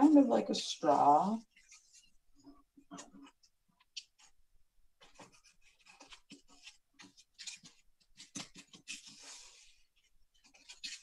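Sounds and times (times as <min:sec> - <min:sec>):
paper rustling and crinkling: 0:00.8 - 0:04.4, 0:05.0 - 0:11.0.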